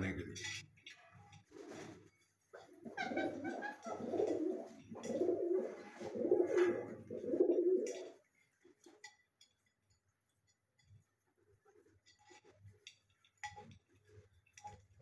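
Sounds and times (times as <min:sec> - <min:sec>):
pigeons cooing: 0:02.7 - 0:08.2.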